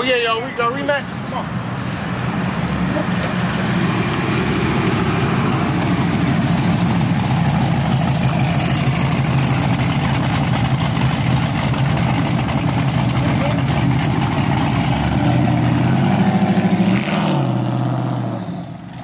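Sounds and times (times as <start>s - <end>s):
car engine idling: 2.6s - 17.8s.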